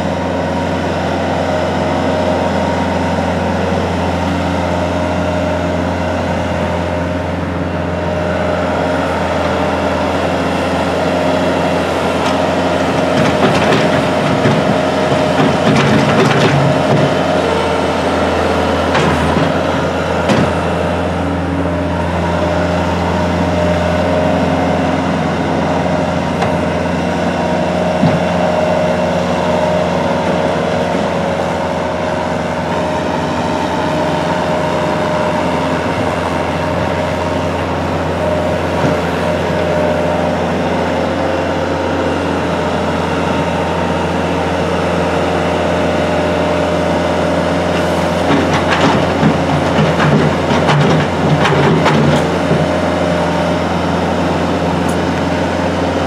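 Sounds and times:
train machine hum: 0:00.8 - 0:56.0
clattering and knocking: 0:13.1 - 0:17.2, 0:48.3 - 0:52.7.

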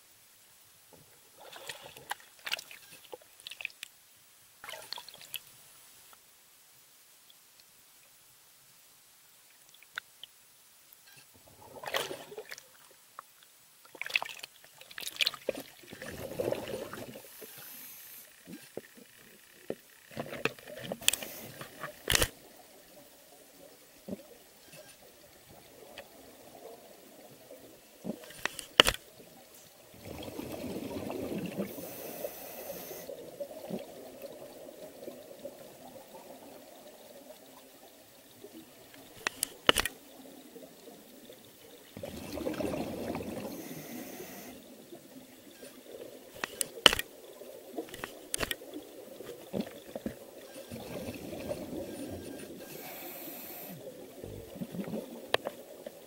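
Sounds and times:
water bubbling and gurgling: 0:13.9 - 0:28.5, 0:29.1 - 0:56.0
rush of bubbles: 0:15.3 - 0:17.3, 0:29.9 - 0:32.1, 0:42.0 - 0:44.5, 0:53.8 - 0:55.8
sharp clicks: 0:20.4 - 0:22.4, 0:28.3 - 0:29.0, 0:39.0 - 0:40.0, 0:46.4 - 0:47.1, 0:47.9 - 0:48.6.

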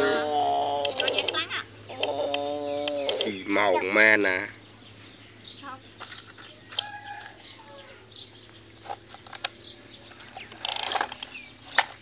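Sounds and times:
birds chirping: 0:00.0 - 0:12.0
toy trucks scraping through mud: 0:08.8 - 0:12.0.

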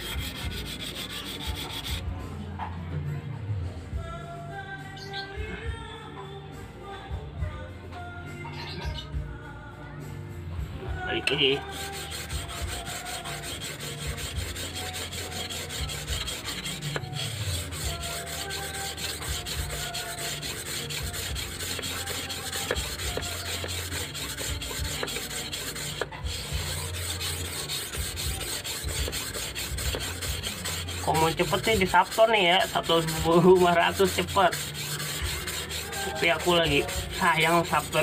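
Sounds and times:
blade scraping on whetstone: 0:00.0 - 0:02.1, 0:11.2 - 0:38.0.

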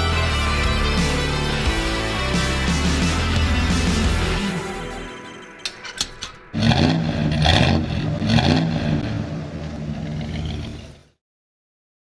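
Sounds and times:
car engine revving: 0:06.5 - 0:11.2.

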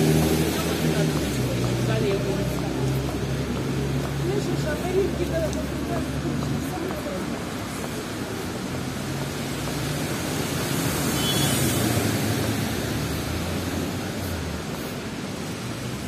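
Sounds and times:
tyre hiss on wet road: 0:07.0 - 0:16.0.

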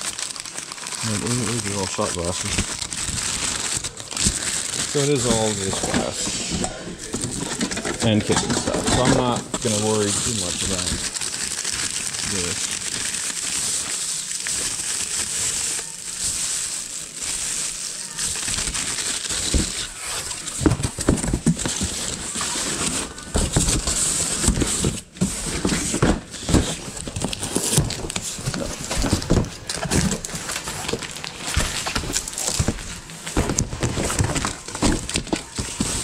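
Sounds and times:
cardboard flaps moving: 0:00.0 - 0:13.9, 0:18.0 - 0:36.0
paper and plastic crinkling: 0:00.0 - 0:36.0
knocks and thumps in cardboard box: 0:18.4 - 0:36.0.

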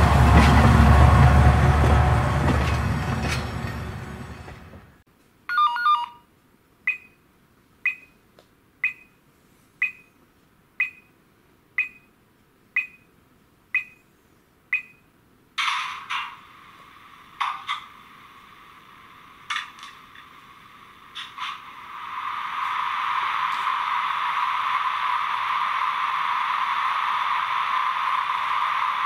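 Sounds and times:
model locomotive running sound: 0:00.0 - 0:04.8, 0:16.0 - 0:29.0
hissing burst with steady tone: 0:15.6 - 0:29.0.

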